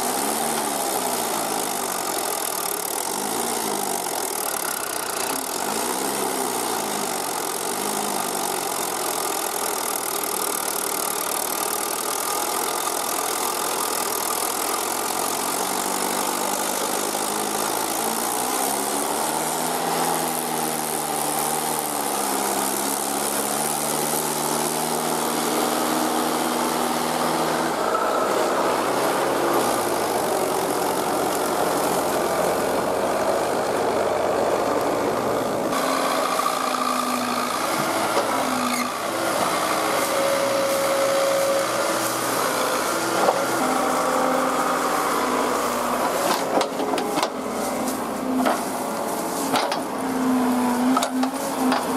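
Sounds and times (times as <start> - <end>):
diesel engines running under load: 0.0 - 51.9.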